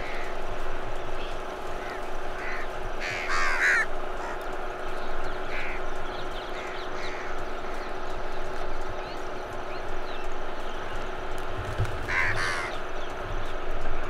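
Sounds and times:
crows cawing: 0:00.0 - 0:00.4, 0:01.3 - 0:04.5, 0:05.4 - 0:05.9, 0:06.5 - 0:07.9, 0:11.7 - 0:12.9
steady background hum: 0:00.0 - 0:14.0.

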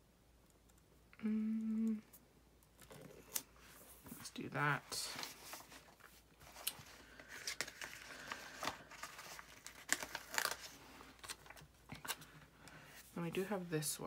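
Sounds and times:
paper rustling and crinkling: 0:04.9 - 0:12.5.

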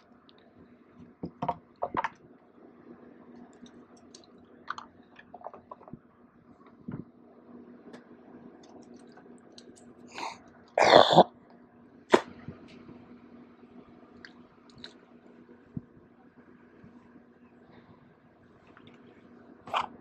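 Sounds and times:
low steady hum: 0:00.0 - 0:20.0
man clearing throat: 0:10.8 - 0:11.3.

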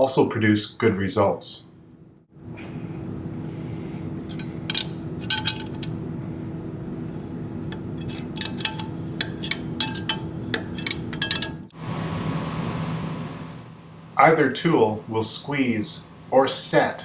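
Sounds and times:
steady low hum: 0:00.0 - 0:17.0
metallic tool clicks and clinks: 0:04.3 - 0:05.9, 0:08.0 - 0:11.6.

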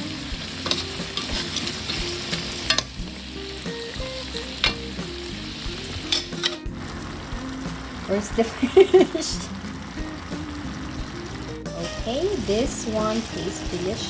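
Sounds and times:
sauce boiling in a pot: 0:06.7 - 0:14.0.

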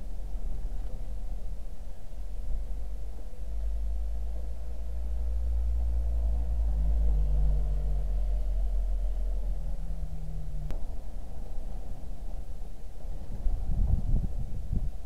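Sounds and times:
faint low hum: 0:00.0 - 0:15.0
wind buffeting microphone: 0:09.6 - 0:15.0.

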